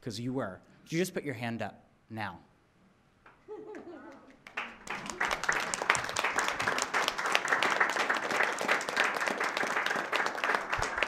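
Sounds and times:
audience applause: 0:04.4 - 0:11.0.

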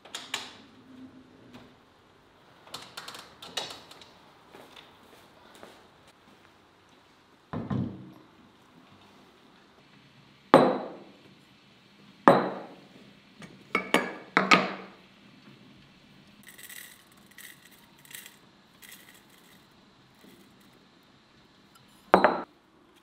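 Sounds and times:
glassware knocking on wooden table: 0:12.3 - 0:12.8.

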